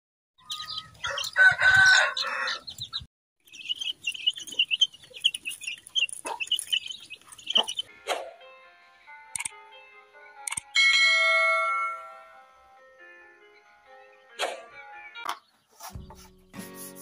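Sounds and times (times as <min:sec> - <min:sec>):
loud chicken call: 0:00.4 - 0:02.7
chicks peeping: 0:00.4 - 0:08.4.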